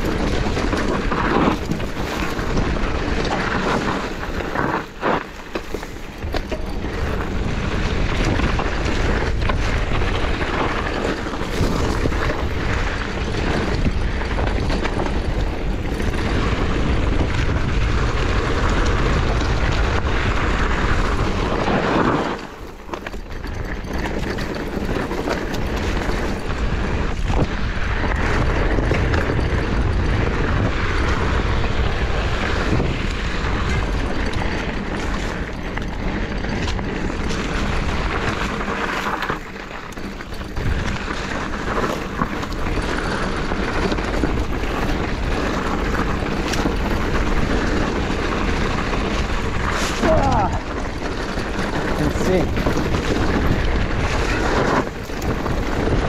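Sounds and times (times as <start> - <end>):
bike tyres rolling over dirt: 0.0 - 56.0
wind noise on microphone: 0.0 - 56.0.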